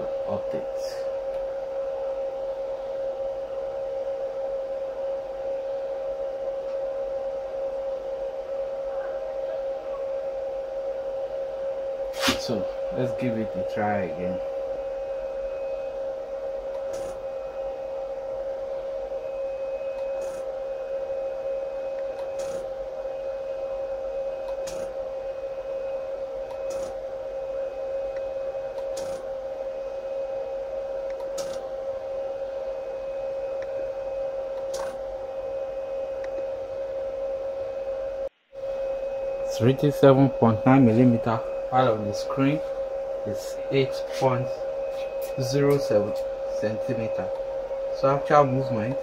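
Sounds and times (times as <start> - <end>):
steady tonal hum: 0.0 - 49.0
stepper motor whine: 0.0 - 49.0.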